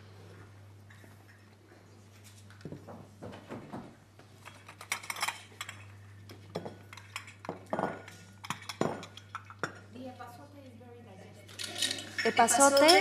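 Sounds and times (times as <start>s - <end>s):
ceramic bowls clinking: 4.5s - 9.9s, 11.6s - 13.0s.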